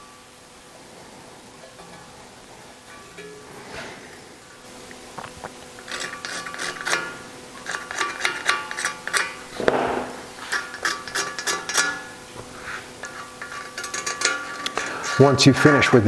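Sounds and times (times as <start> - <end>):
scraper scraping metal edges: 5.8 - 16.0.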